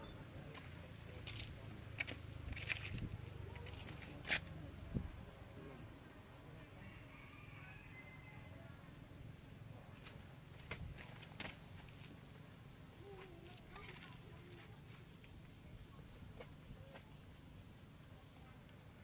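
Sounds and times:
insects droning: 0.0s - 19.0s
faint high squeal: 6.8s - 8.8s.

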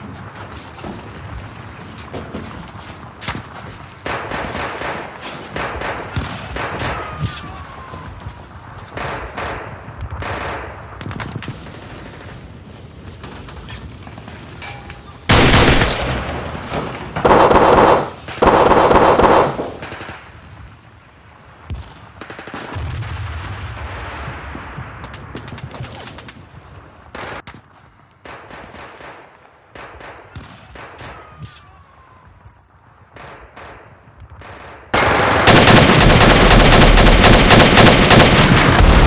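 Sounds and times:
automatic gunfire bursts: 15.3s - 16.2s, 17.2s - 20.1s, 35.0s - 39.0s.

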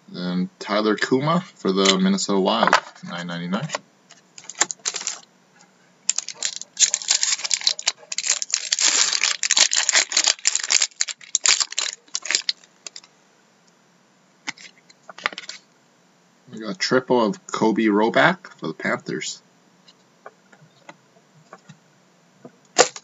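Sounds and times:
foil wrapper crinkling and tearing: 4.4s - 5.3s, 6.1s - 13.1s.

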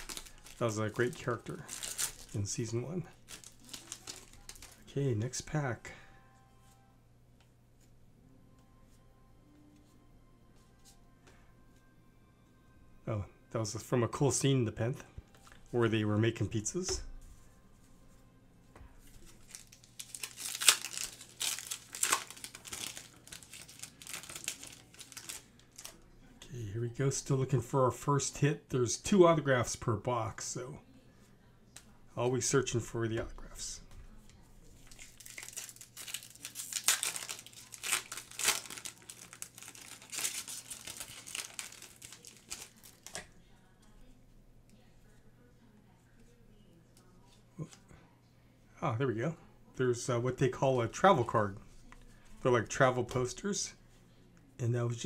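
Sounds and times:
foil wrapper tearing and crinkling: 0.0s - 4.9s, 19.2s - 26.0s, 34.8s - 43.2s.

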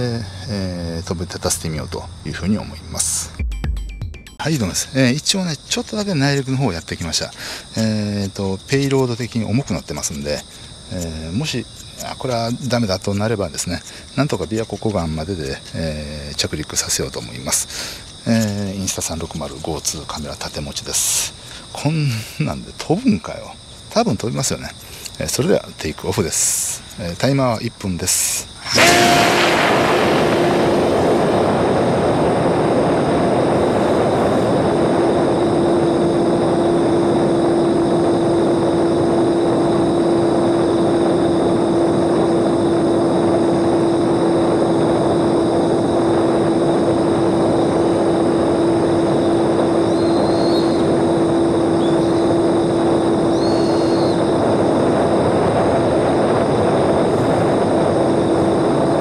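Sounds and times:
rushing air: 28.4s - 59.0s.

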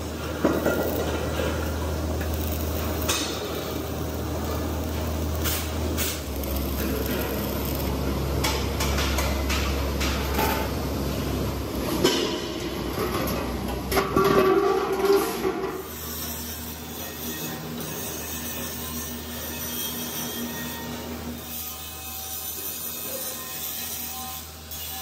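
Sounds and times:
welding arc crackling: 0.0s - 13.9s
welding machine hum: 0.0s - 25.0s.

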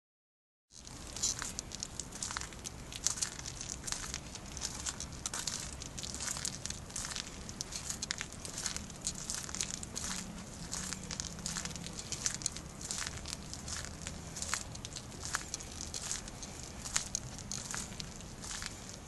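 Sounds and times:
footsteps on wet pavement: 0.8s - 19.0s.

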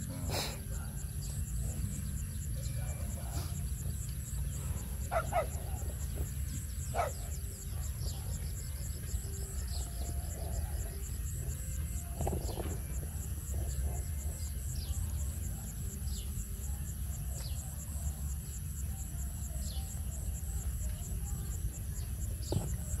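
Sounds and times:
constant high whine: 0.0s - 23.0s
insects chirping: 0.0s - 23.0s
falling bird calls: 0.1s - 15.0s.

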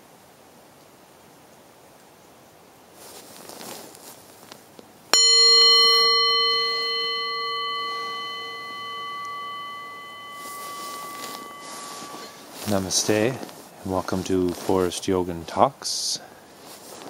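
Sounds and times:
meditation bell ringing: 5.2s - 13.5s.

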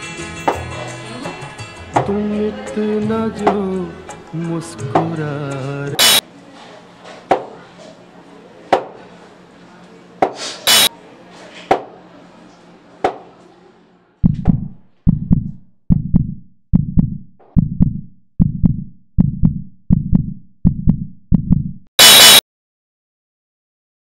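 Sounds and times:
heartbeat thumps: 14.2s - 21.9s.

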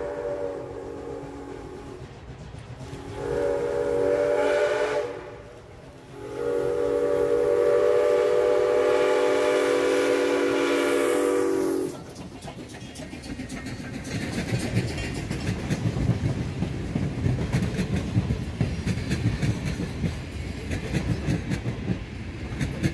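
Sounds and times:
steam locomotive whistle: 0.0s - 2.0s, 2.8s - 12.1s
freight train rumble: 0.0s - 22.9s.

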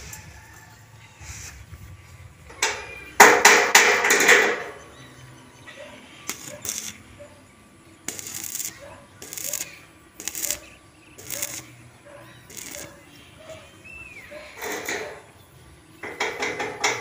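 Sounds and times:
metal clattering: 2.6s - 4.8s.

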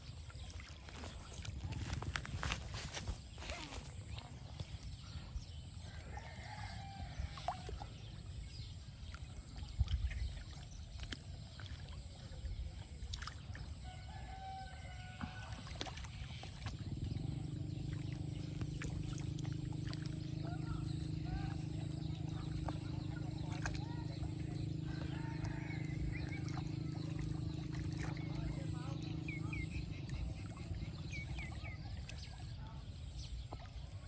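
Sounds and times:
distant bird calls: 0.0s - 34.0s
water splashing and sloshing: 0.0s - 34.0s
steady droning hum: 16.1s - 33.0s.

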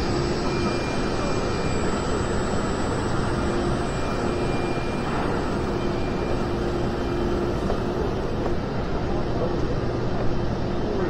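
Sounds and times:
busy exhibition hall din: 0.0s - 11.0s.

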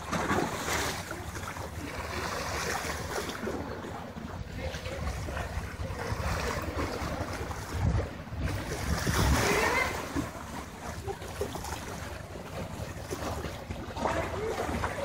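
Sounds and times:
sea water washing on rocks: 0.0s - 15.0s
wind noise on microphone: 4.3s - 10.3s.

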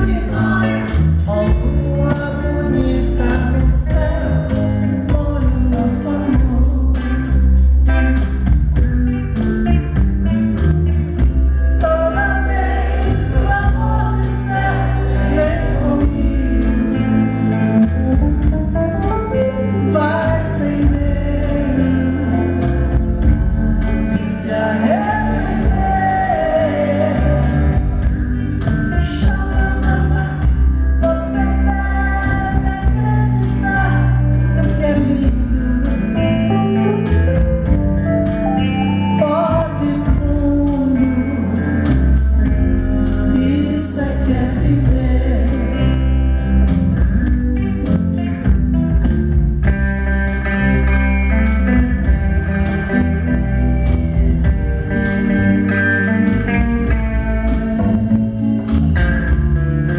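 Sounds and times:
woman singing pop song: 0.0s - 8.0s, 11.2s - 17.7s, 19.6s - 37.8s, 38.6s - 46.4s
live band playing: 0.0s - 59.9s.

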